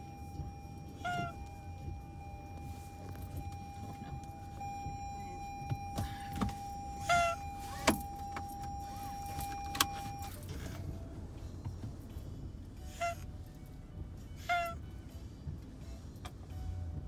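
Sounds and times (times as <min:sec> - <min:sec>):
car interior hum: 0:00.0 - 0:17.0
cat honking call: 0:01.0 - 0:01.4.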